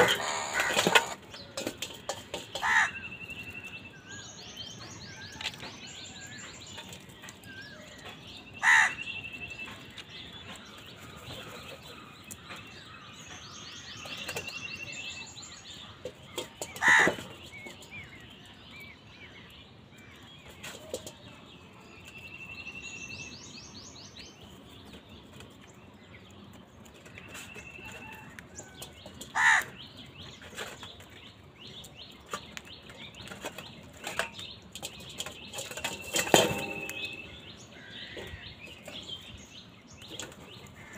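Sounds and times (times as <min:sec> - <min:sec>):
birds chirping and trilling: 0:00.0 - 0:40.9
crows cawing: 0:02.6 - 0:03.0, 0:08.6 - 0:09.0, 0:16.8 - 0:17.2, 0:29.3 - 0:29.8.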